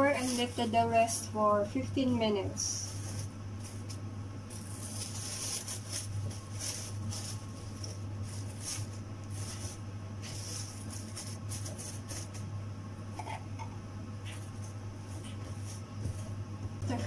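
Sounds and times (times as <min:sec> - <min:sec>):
cling film crinkling: 0:00.0 - 0:01.0, 0:02.8 - 0:12.5
steady low hum: 0:00.0 - 0:17.0.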